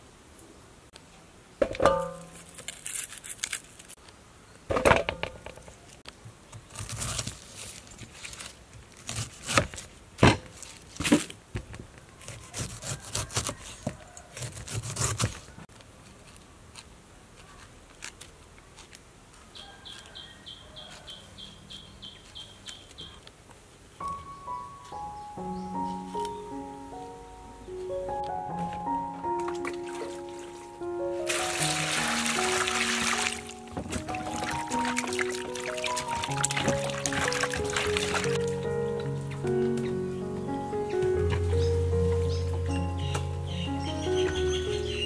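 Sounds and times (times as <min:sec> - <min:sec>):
ringing knock: 0:01.6 - 0:02.4
knife cutting pineapple: 0:02.1 - 0:04.0, 0:06.6 - 0:11.2, 0:12.2 - 0:19.0
high chirping: 0:19.6 - 0:23.2, 0:24.0 - 0:45.0.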